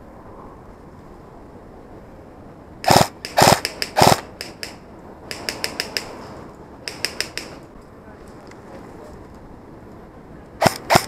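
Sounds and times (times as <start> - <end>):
airsoft gunshots: 2.9 - 6.2, 6.9 - 7.6, 10.6 - 11.0.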